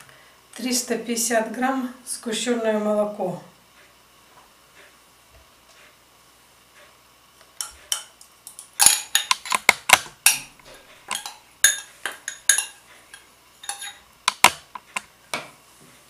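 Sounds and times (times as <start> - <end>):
metal spoon scraping glass jar: 13.6 - 14.0.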